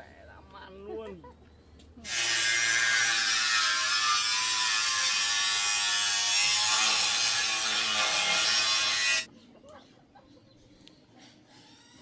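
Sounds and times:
power tool cutting with whine: 2.1 - 9.3.

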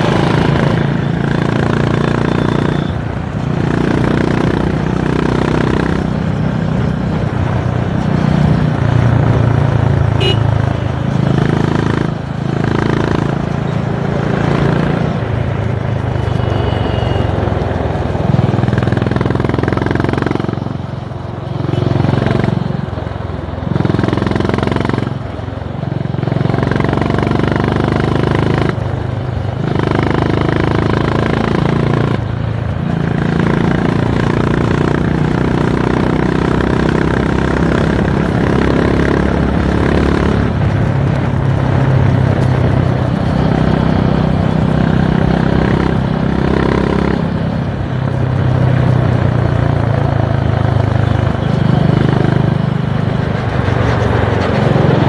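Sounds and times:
motorcycle engine and exhaust: 0.0 - 55.0.

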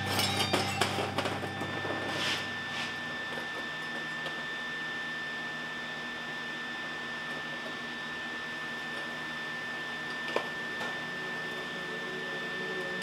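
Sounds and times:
high whine: 0.0 - 7.2
machinery hum and hiss: 0.0 - 13.0.

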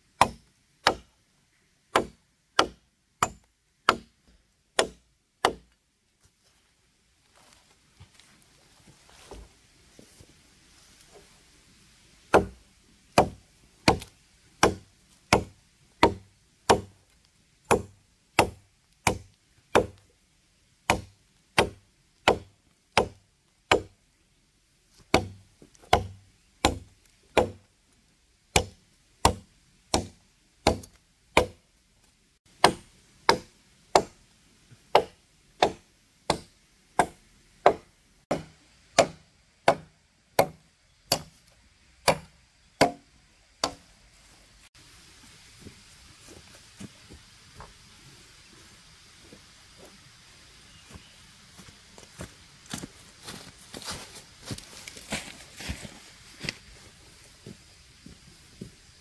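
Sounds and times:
machete chopping wood: 0.2 - 1.1, 1.9 - 4.1, 4.8 - 5.7, 12.3 - 12.6, 13.2 - 17.0, 17.7 - 20.0, 20.9 - 24.0, 25.1 - 27.6, 28.5 - 31.6, 32.6 - 34.2, 34.9 - 41.4, 42.0 - 43.8.

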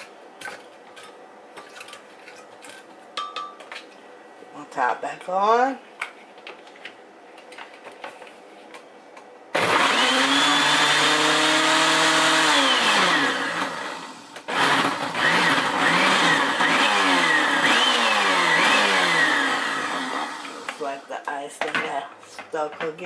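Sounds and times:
blender crushing ice: 9.6 - 20.9.

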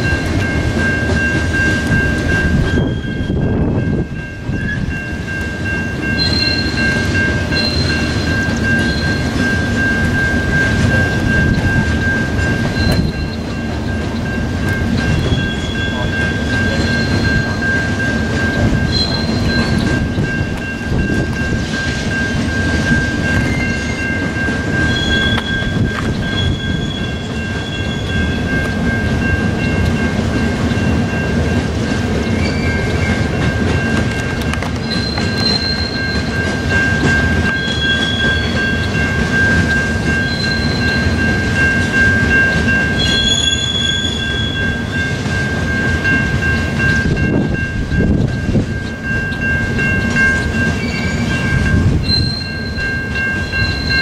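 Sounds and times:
constant high squeal: 0.0 - 31.3, 32.2 - 54.0
train wheels rumbling on rail: 0.0 - 54.0
short wheel squeals: 6.2 - 6.9, 7.6 - 9.2, 18.9 - 19.9, 32.4 - 32.8, 34.8 - 36.3, 43.0 - 44.6, 52.0 - 52.8.

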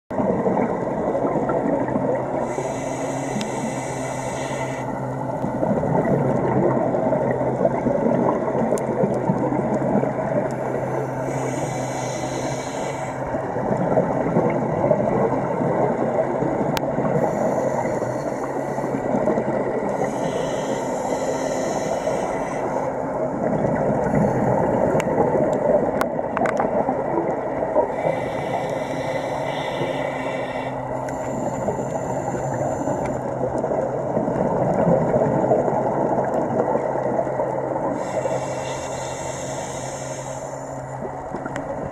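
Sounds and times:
underwater sea rumble: 0.1 - 41.9
diver breathing through regulator: 2.2 - 5.7, 10.4 - 13.7, 17.0 - 23.4, 27.8 - 33.4, 37.8 - 41.2.

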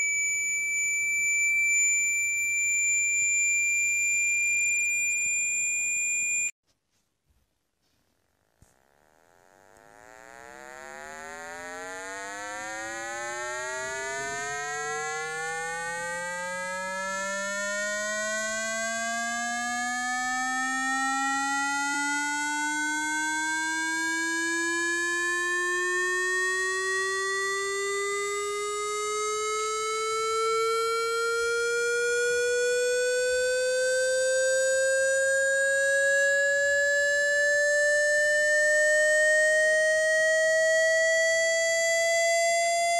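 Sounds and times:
buzzy rising electronic tone: 8.8 - 40.0.

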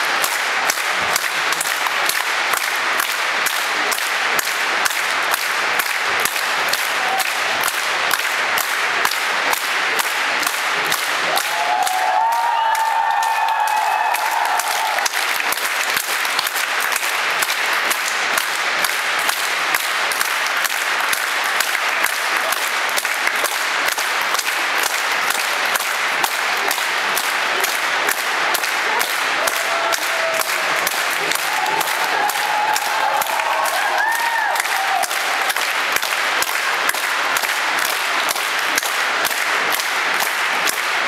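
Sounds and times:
audience applauding: 0.0 - 41.0.

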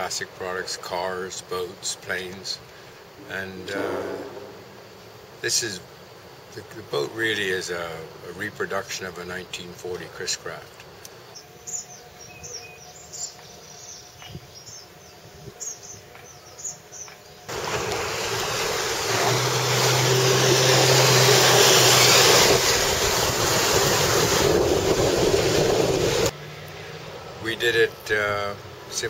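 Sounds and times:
boat rushing through water: 17.5 - 26.3.

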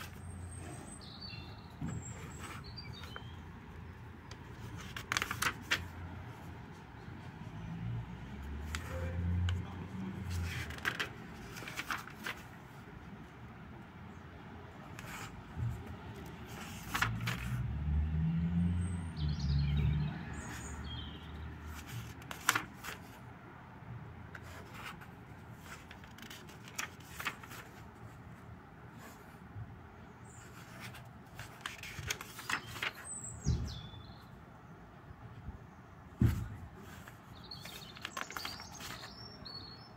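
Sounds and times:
notebook pages rustling: 0.0 - 0.8, 1.5 - 6.9, 8.7 - 12.8, 14.9 - 17.6, 21.6 - 23.3, 24.3 - 28.3, 30.4 - 33.3, 36.2 - 39.2.

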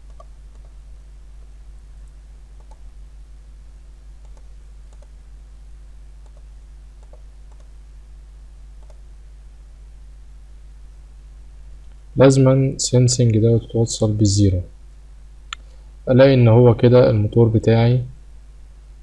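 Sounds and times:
computer mouse clicking: 0.0 - 0.8, 2.0 - 2.9, 4.2 - 5.2, 6.2 - 7.7, 8.8 - 9.0
low electrical hum: 0.0 - 19.0.

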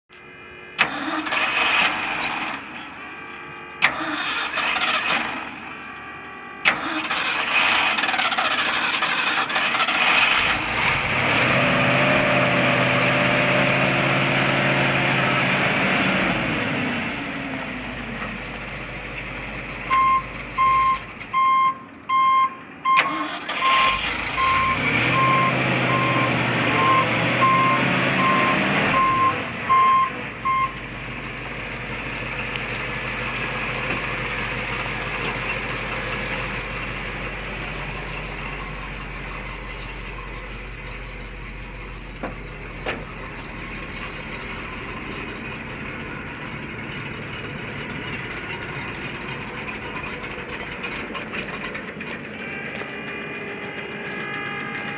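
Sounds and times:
truck engine idling: 0.1 - 54.9
engine revving: 0.7 - 18.6, 22.9 - 39.9
backup alarm beeping: 19.9 - 30.8.

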